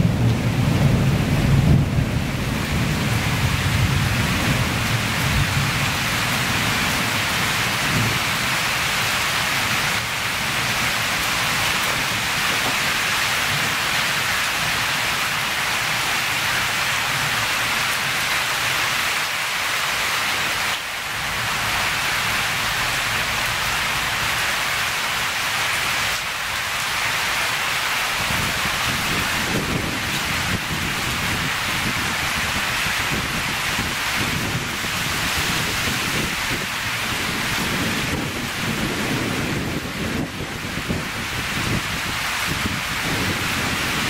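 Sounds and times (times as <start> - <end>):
low thunder rumble: 0.0 - 8.4, 28.2 - 44.0
steady rain: 0.0 - 44.0.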